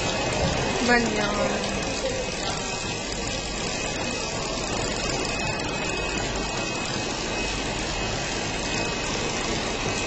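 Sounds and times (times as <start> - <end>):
faint high whine: 0.0 - 10.0
laminating machine running: 0.0 - 10.0.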